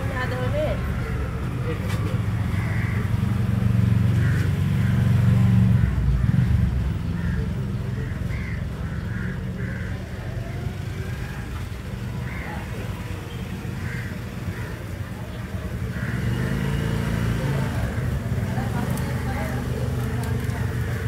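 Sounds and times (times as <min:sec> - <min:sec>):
vehicle engine passing by: 0:15.8 - 0:21.0.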